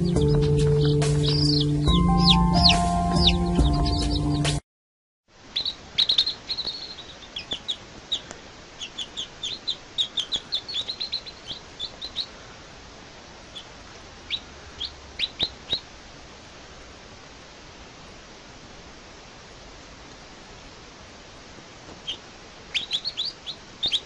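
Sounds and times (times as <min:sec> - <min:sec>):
baby chicks peeping: 0:00.0 - 0:04.6, 0:05.4 - 0:12.7, 0:13.4 - 0:15.9, 0:21.9 - 0:24.0.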